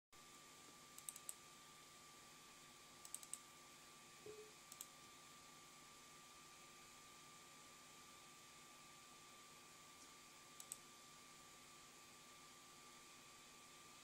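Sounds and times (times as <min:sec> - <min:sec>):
faint steady tone: 0:00.2 - 0:14.0
computer mouse clicks: 0:01.0 - 0:01.4, 0:03.0 - 0:03.4, 0:04.3 - 0:05.0, 0:10.6 - 0:10.8.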